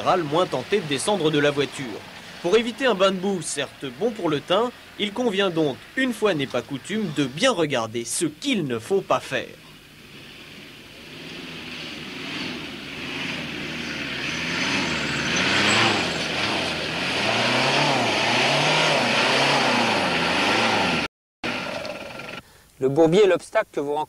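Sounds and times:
car engine revving: 0.0s - 7.6s, 9.0s - 22.4s
wheels churning mud: 0.0s - 22.4s.

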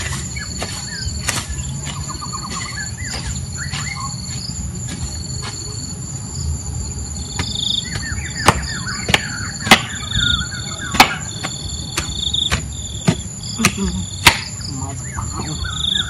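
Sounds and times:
birds chirping: 0.0s - 16.0s
insects droning: 0.0s - 16.0s
pulsing insect call: 0.0s - 16.0s
sharp knocks: 8.4s - 10.0s, 10.9s - 14.6s.

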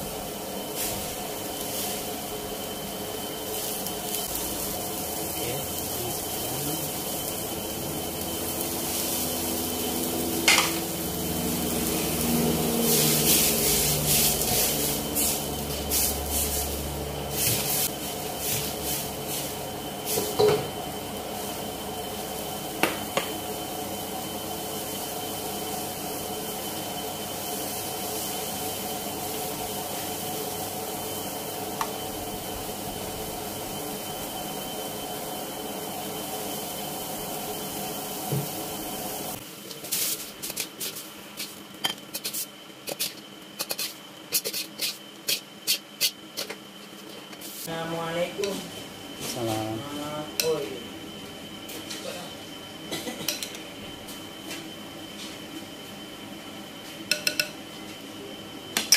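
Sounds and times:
gas burner hum and hiss: 0.0s - 58.9s
ladle knocking and scraping wok: 10.4s - 10.8s.

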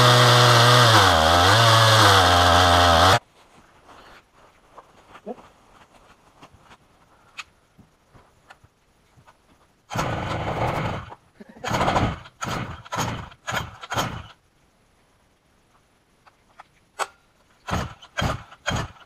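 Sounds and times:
chainsaw engine bursts: 0.0s - 3.2s, 9.9s - 14.4s, 17.6s - 19.0s.

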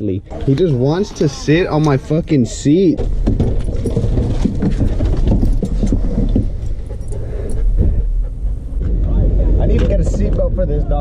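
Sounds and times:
van engine low rumble: 0.0s - 11.0s
rattles and clicks: 3.0s - 10.5s.

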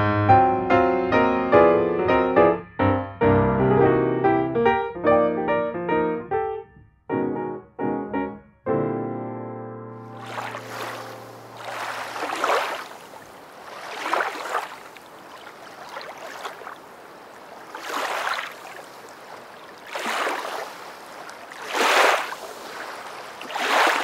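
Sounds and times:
rushing water: 10.1s - 24.0s.

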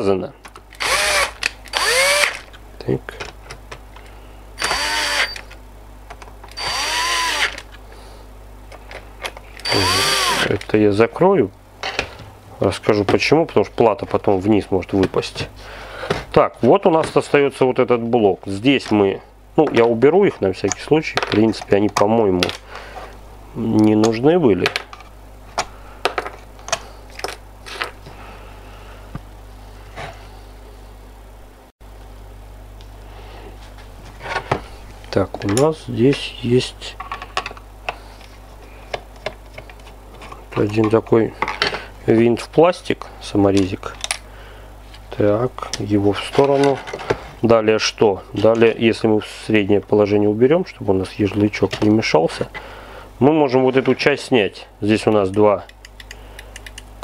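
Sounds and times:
steady low hum: 0.0s - 57.0s
cordless drill spinning: 0.8s - 2.4s, 4.6s - 5.5s, 6.5s - 7.7s, 9.6s - 10.5s.

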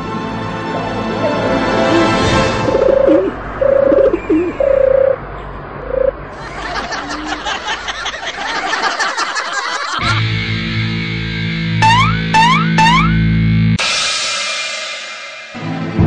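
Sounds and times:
cartoon bird chirps: 2.0s - 5.2s.

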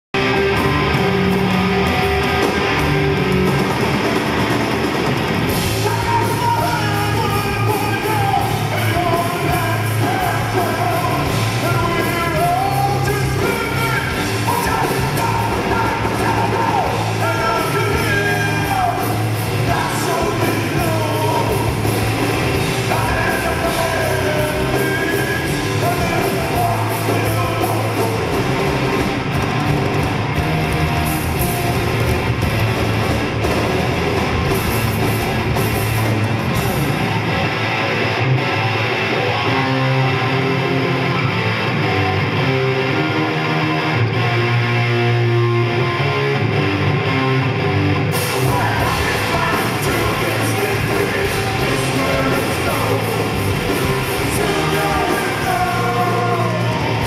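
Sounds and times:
drums: 0.0s - 57.0s
electric guitar: 0.1s - 57.0s
man singing and yelling: 5.7s - 28.8s, 48.2s - 57.0s.

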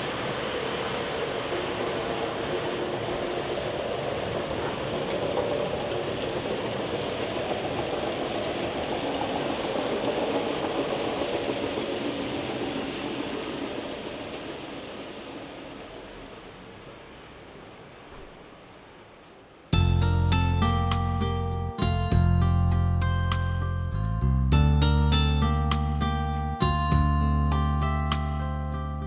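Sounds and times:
model train wheels rumbling: 0.0s - 18.1s.

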